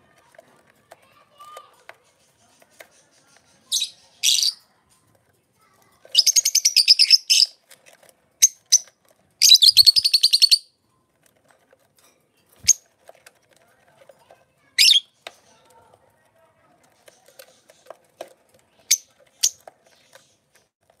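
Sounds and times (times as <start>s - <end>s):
lovebirds chattering: 2.0s - 4.7s, 6.1s - 7.6s, 8.4s - 10.7s, 14.8s - 15.7s, 16.8s - 20.6s.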